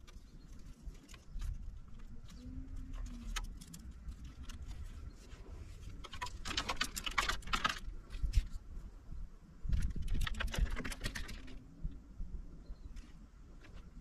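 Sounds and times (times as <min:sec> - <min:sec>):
cord clicks and rustles: 0:05.8 - 0:08.6, 0:09.7 - 0:11.6.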